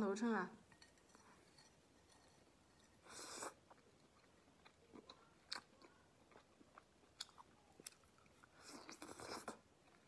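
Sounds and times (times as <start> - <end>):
chewing clicks and smacks: 3.7 - 10.0.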